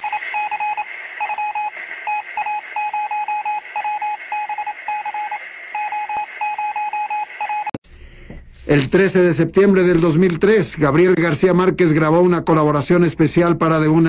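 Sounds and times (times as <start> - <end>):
morse-like radio beeps: 0.0 - 7.8
radio hiss: 0.0 - 14.0.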